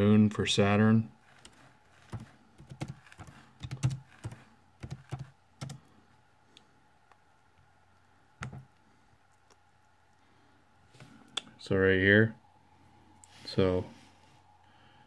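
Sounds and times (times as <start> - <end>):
computer keyboard typing: 1.3 - 5.8.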